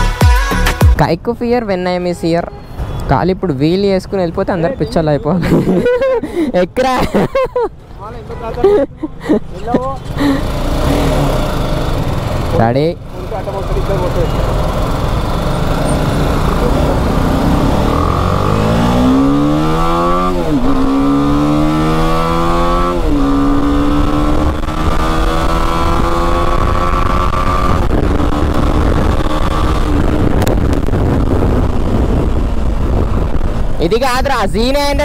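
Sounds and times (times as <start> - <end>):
motorcycle engine accelerating: 10.2 - 33.8.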